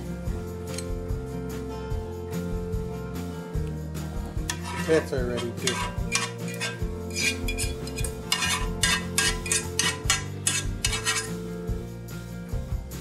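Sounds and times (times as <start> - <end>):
background music: 0.0 - 13.0
spoon scraping metal saucepan: 4.4 - 11.5.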